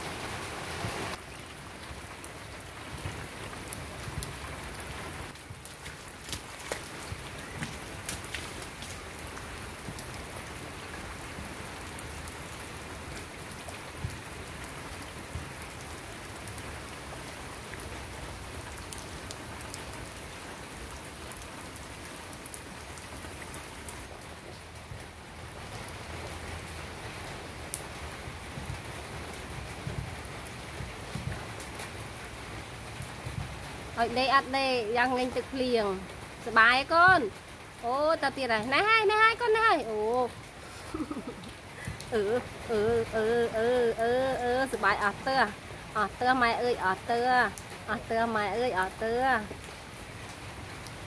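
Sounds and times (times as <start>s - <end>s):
rain on ground and foliage: 0.0s - 51.0s
raindrop taps: 4.1s - 10.2s, 40.7s - 43.3s.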